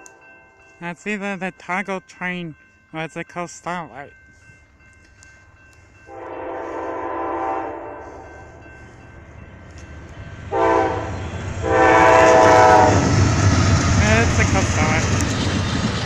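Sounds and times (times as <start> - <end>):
train rumble: 0.0 - 16.0
train air horn chord: 6.1 - 8.6, 10.5 - 13.1.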